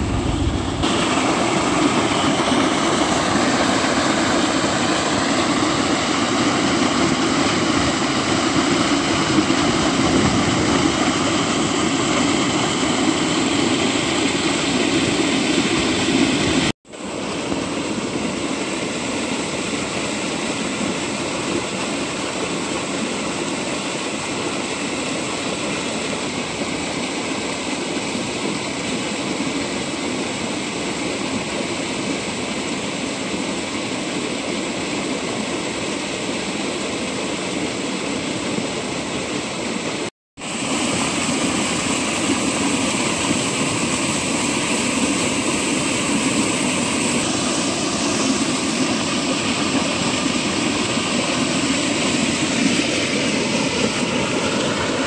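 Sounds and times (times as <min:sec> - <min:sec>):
water gushing from outlet: 0:00.0 - 0:55.0.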